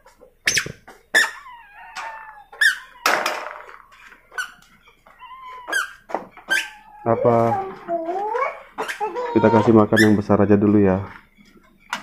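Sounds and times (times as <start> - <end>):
kittens mewing: 1.1 - 4.2, 5.0 - 10.3.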